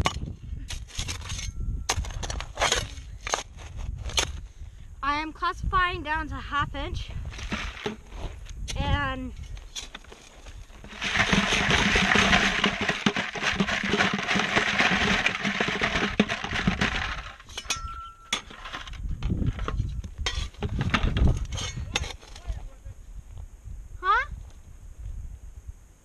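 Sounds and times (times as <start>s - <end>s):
gravel rattling in shaken screen: 7.2s - 8.4s, 9.7s - 17.6s
stones clinking: 7.3s - 8.2s, 9.8s - 22.1s.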